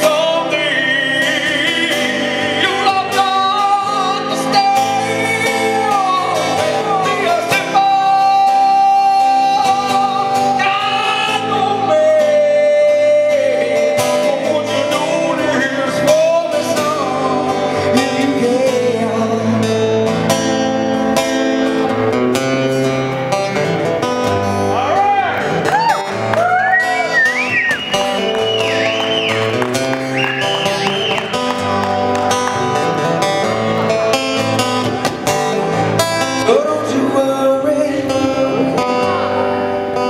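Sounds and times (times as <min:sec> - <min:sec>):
man singing into a microphone: 0:00.0 - 0:20.4, 0:35.6 - 0:40.0
strummed acoustic guitar: 0:00.0 - 0:40.0.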